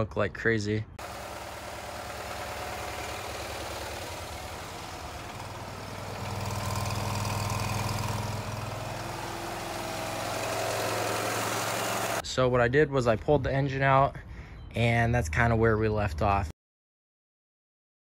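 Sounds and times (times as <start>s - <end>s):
utility vehicle engine idling: 1.0s - 12.2s.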